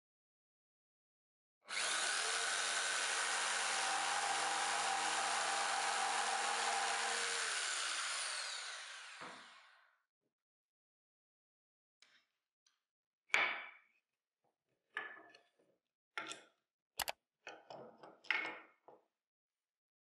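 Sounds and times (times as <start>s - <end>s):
jigsaw cutting wood: 1.7s - 9.9s.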